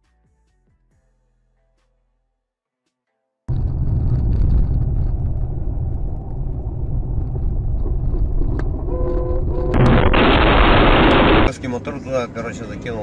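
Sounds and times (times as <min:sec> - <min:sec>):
car engine and tyre rumble: 0:03.5 - 0:13.0.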